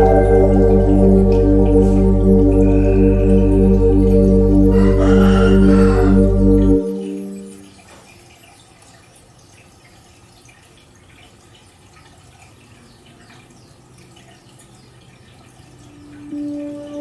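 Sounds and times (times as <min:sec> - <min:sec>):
low steady hum: 0:00.0 - 0:07.8
aquarium water bubbling and dripping: 0:00.0 - 0:17.0.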